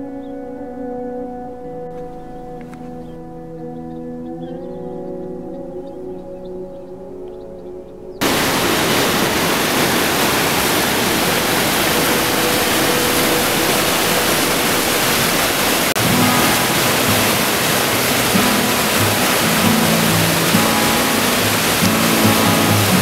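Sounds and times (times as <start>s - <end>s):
soft background music: 0.0s - 8.2s, 11.3s - 23.0s
water rushing over a weir: 8.2s - 23.0s.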